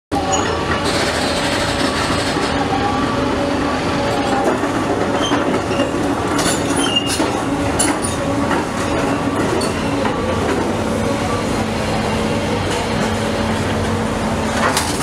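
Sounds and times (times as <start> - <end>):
excavator engine running: 0.1 - 15.0
high metal squeals: 6.6 - 7.2.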